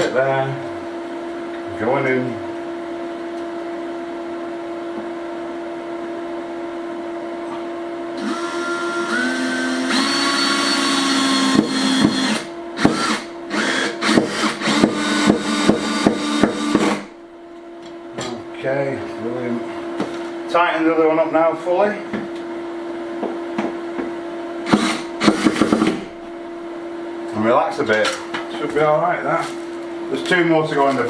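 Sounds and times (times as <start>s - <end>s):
power drill driving screw: 8.2s - 17.1s, 24.6s - 26.0s.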